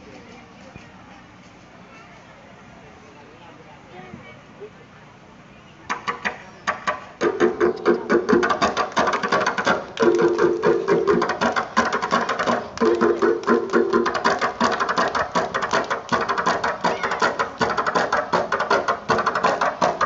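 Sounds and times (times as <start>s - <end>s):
fast frame drum beat: 7.2s - 20.0s.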